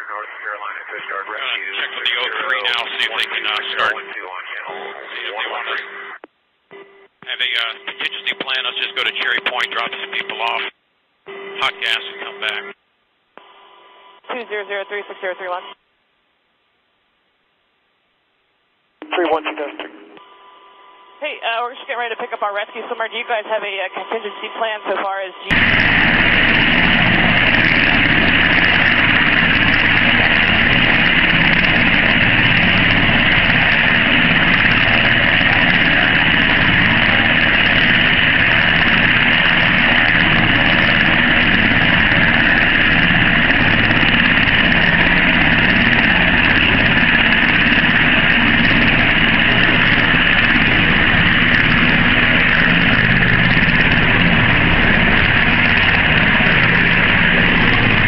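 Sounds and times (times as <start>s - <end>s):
helicopter flying: 0.0s - 6.2s, 7.3s - 10.7s, 21.2s - 58.0s.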